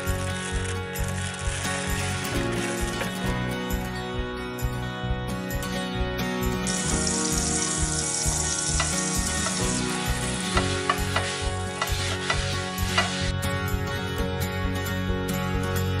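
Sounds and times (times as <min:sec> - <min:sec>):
soft background music: 0:00.0 - 0:16.0
frying pan sizzling: 0:06.6 - 0:13.4.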